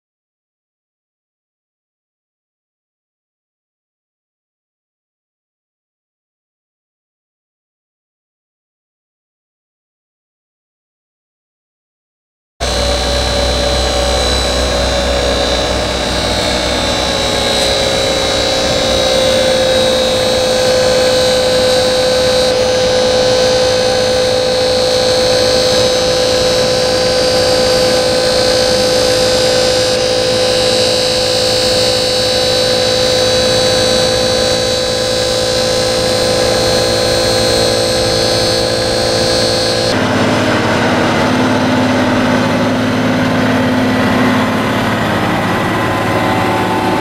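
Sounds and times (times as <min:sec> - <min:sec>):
hydraulic pump whining: 0:12.6 - 0:47.0.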